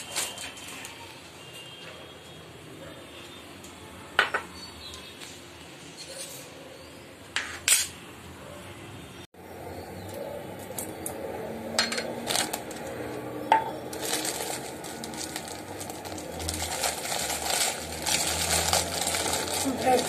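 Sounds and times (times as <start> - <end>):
plastic packet crinkling: 12.1 - 13.0, 13.8 - 20.0.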